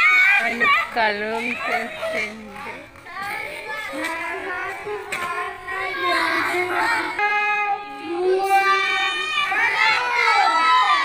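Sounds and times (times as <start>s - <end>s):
children calling out sing-song: 0.0s - 11.0s
long held note: 7.2s - 8.6s.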